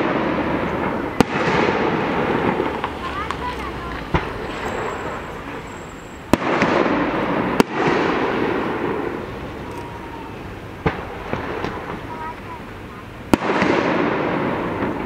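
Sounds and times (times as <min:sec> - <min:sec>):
firework shells bursting: 0:00.0 - 0:12.4.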